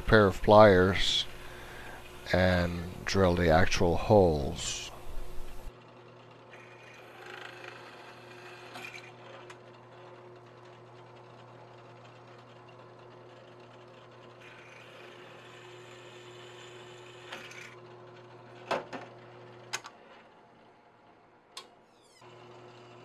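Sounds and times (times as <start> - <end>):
drill press motor humming: 0.1 - 3.1, 4.0 - 23.0
drill bit cutting metal: 14.4 - 17.8.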